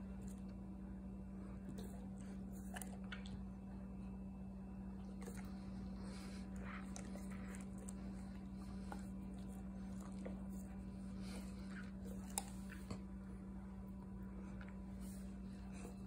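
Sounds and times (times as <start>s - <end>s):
low hum: 0.0s - 16.0s
dog licking and lip smacking: 1.7s - 3.6s, 5.0s - 13.2s.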